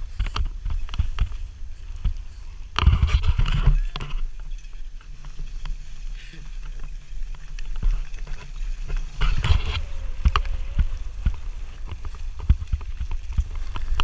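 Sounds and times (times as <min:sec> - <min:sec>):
low wind rumble on microphone: 0:00.0 - 0:14.0
skis sliding through snow: 0:00.0 - 0:14.0.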